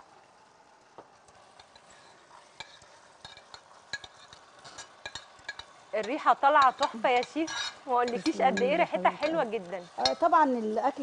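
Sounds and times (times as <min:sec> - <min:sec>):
steak sizzling in a pan: 0:00.0 - 0:11.0
utensil scraping a pan: 0:01.4 - 0:10.4
utensil clinking against pan: 0:02.6 - 0:10.3.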